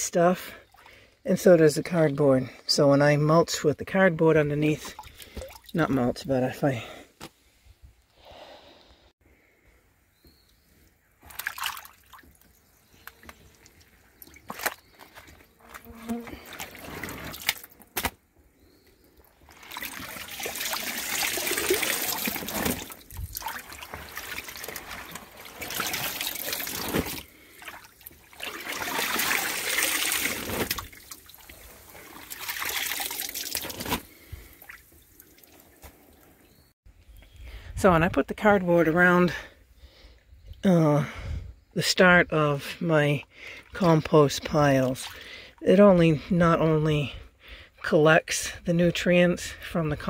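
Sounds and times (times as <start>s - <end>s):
small water splashes: 4.8s - 5.9s, 11.2s - 17.8s, 19.3s - 35.8s
water trickling into tub: 4.8s - 5.9s, 11.2s - 14.8s, 19.3s - 35.8s.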